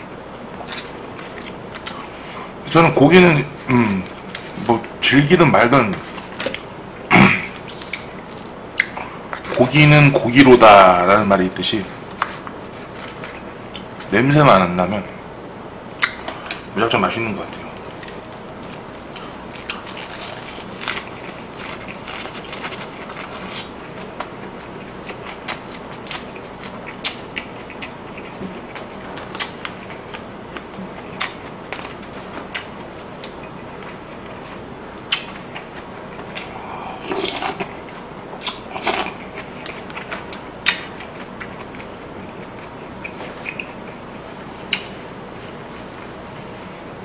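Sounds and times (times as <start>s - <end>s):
wet chewing and crunching: 0.2s - 2.6s, 7.5s - 9.6s, 17.5s - 45.0s.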